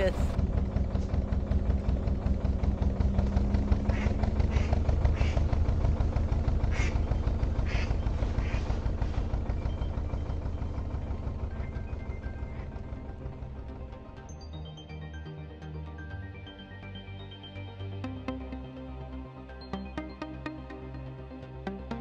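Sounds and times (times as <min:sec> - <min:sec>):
boat engine thudding: 0:00.0 - 0:14.3.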